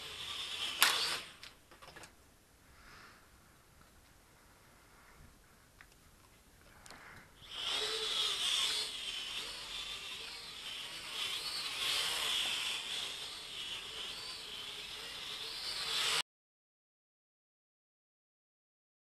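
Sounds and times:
toy drone motors whining: 0.0s - 1.6s, 7.4s - 16.2s.

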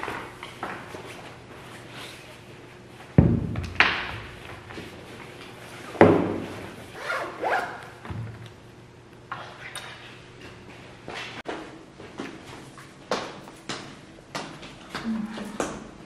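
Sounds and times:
bag zipper pulled: 7.0s - 7.8s.

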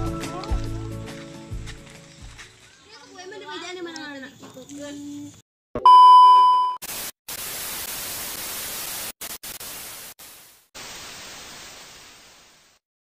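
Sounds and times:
tv static hiss: 6.8s - 12.8s.

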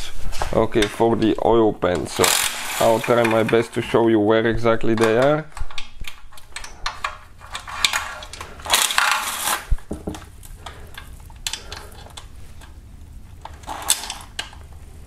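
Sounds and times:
cordless power tool whirring: 2.2s - 3.5s.

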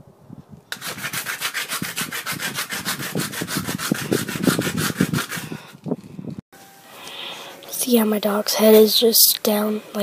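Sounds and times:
toy scraping on concrete: 0.7s - 5.9s.

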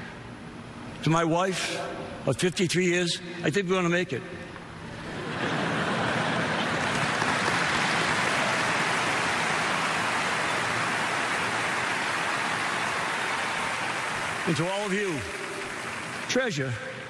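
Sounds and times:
audience applauding: 5.1s - 16.8s.

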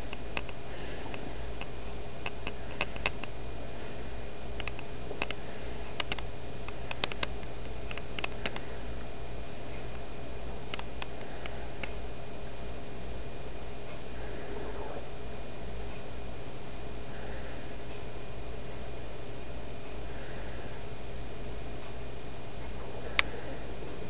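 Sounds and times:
low hum and hiss: 0.0s - 24.0s
light clicks: 4.6s - 8.7s.

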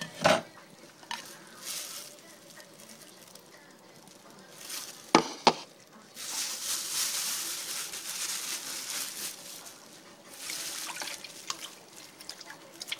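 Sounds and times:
water splashing and trickling: 6.2s - 12.9s.

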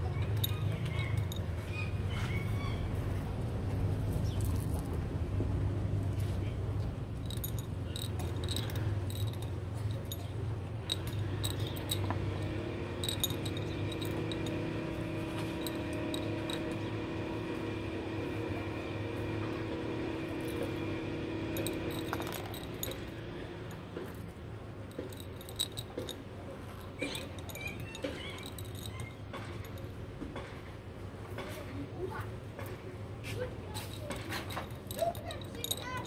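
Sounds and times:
steady low hum: 3.2s - 31.2s
chips clinking in glass bottle: 7.3s - 16.9s
droning tone: 10.9s - 23.4s.

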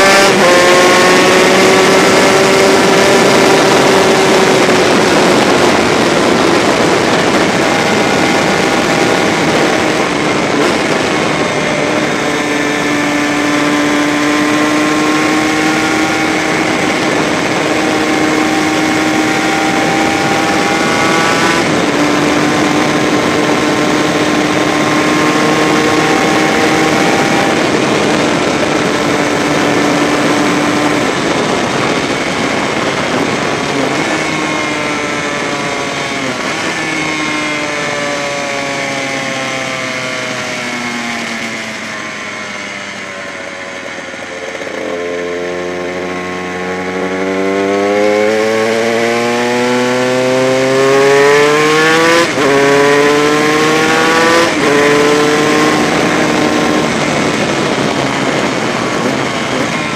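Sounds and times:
racing engine running hard: 0.0s - 59.9s
rush of wind: 0.0s - 59.9s.

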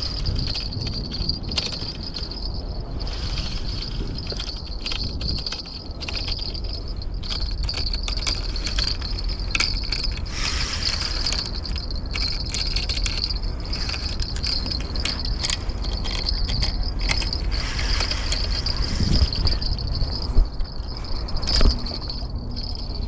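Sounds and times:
fishing reel whirring: 0.0s - 23.0s
wind rumble on microphone: 0.0s - 23.0s
reel drag clicking: 3.0s - 20.3s.

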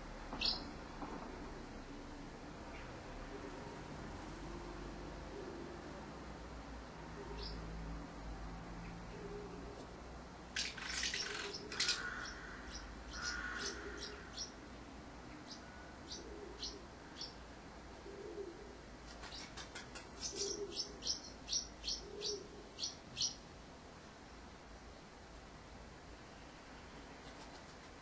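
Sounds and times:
house martins chirping: 10.6s - 14.5s.

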